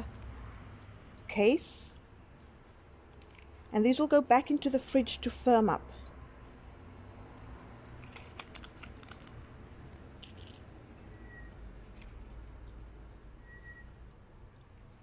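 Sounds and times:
paper cases crinkling and clicking: 0:08.0 - 0:10.6.

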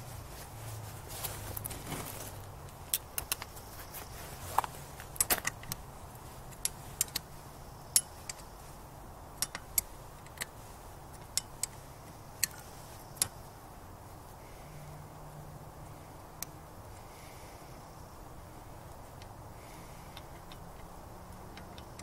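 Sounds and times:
socket wrench clicking: 0:09.4 - 0:10.5, 0:12.4 - 0:12.6, 0:20.1 - 0:22.0.

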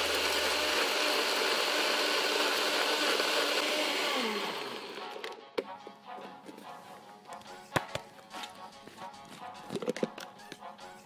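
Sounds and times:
blender crushing ice: 0:00.0 - 0:05.4.

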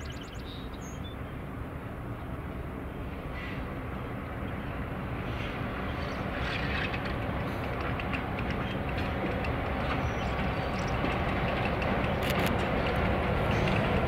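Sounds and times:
train rumbling on rails: 0:00.0 - 0:14.0
train wheel clicks: 0:06.5 - 0:14.0.

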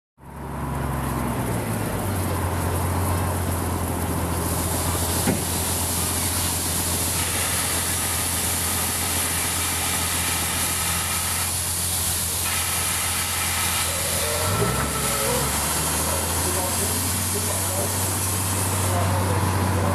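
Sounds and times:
low engine hum: 0:00.2 - 0:19.9
steam hissing: 0:03.4 - 0:19.9.

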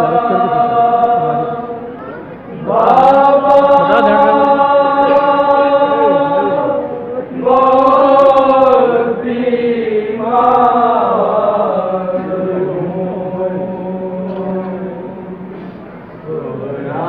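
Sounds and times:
men chanting a lament: 0:00.0 - 0:17.0.

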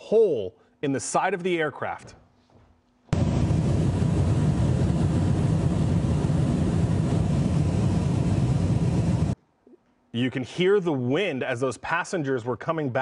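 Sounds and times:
wind rushing through cabin hole: 0:03.1 - 0:09.4.

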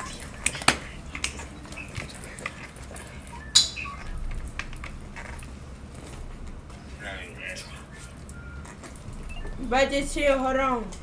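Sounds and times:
hand claps and slaps: 0:00.4 - 0:01.4.

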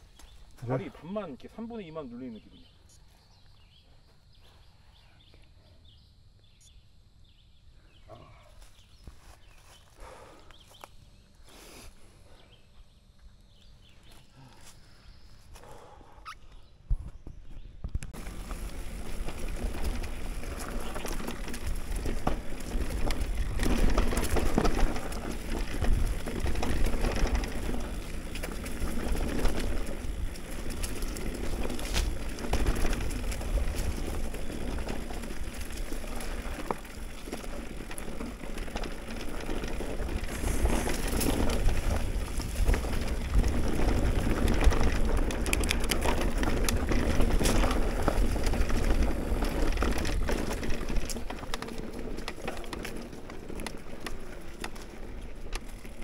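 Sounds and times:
bike tyres rolling over dirt: 0:00.0 - 0:56.0
bike rattles and clicks: 0:08.6 - 0:56.0
wind rumble on microphone: 0:16.6 - 0:53.2.

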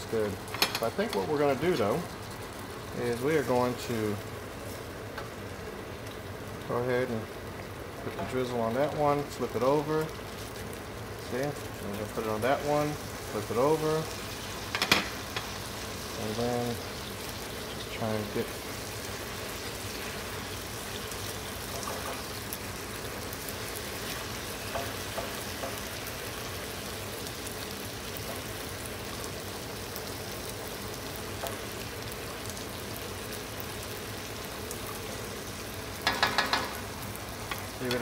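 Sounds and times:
meat sizzling in a pan: 0:00.0 - 0:38.0.

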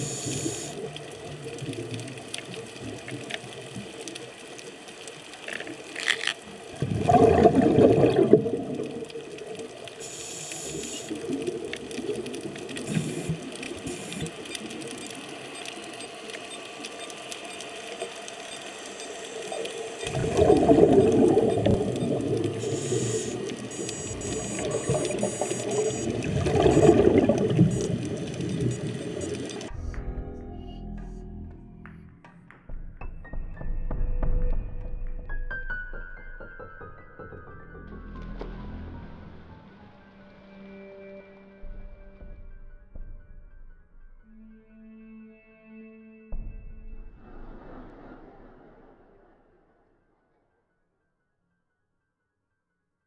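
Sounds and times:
underwater hiss: 0:00.0 - 0:01.0, 0:10.0 - 0:11.5, 0:12.7 - 0:14.5, 0:18.8 - 0:29.4
bubbling regulator exhalations: 0:06.8 - 0:08.9, 0:20.0 - 0:29.7.

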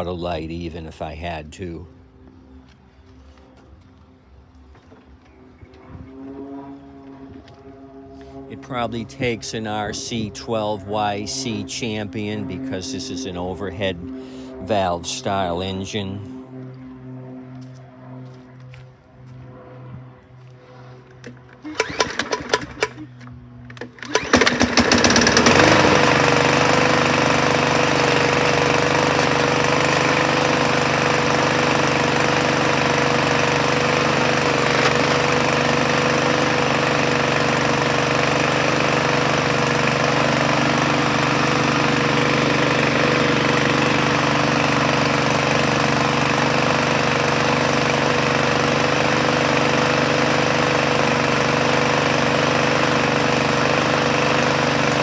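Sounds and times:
lawn mower engine running: 0:02.2 - 0:55.0
mower recoil pulls: 0:20.8 - 0:55.0.

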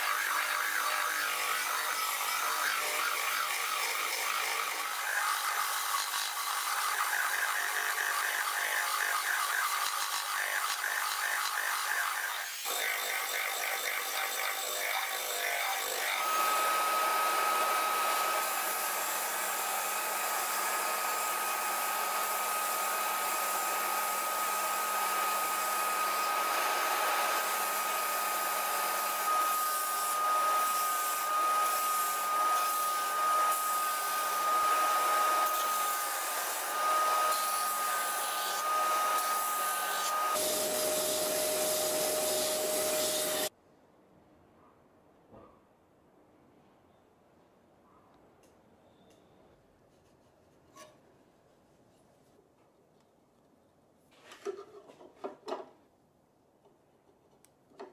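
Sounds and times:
drum sander in a drill: 0:00.0 - 0:43.5
belt sander whining: 0:12.3 - 0:43.5.

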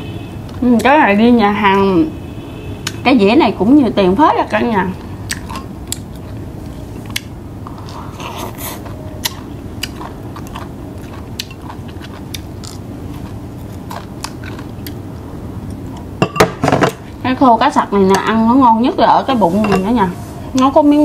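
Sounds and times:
chewing and crunching food: 0:04.4 - 0:16.1.

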